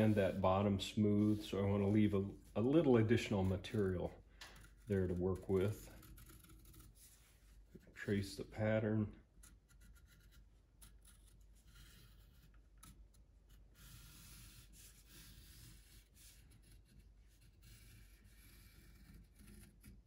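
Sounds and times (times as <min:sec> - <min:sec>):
pencil scratching on paper: 0:00.0 - 0:00.4, 0:01.1 - 0:08.2, 0:09.4 - 0:20.0.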